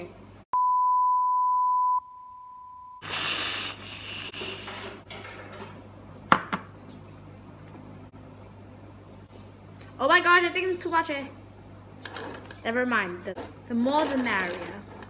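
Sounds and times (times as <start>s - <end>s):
high test-tone beep: 0.6s - 3.0s.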